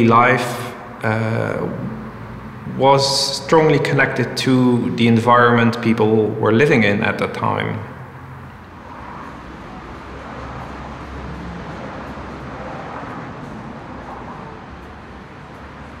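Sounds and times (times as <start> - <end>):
steady hiss: 0.0 - 5.2
low rumbling background noise: 0.0 - 16.0.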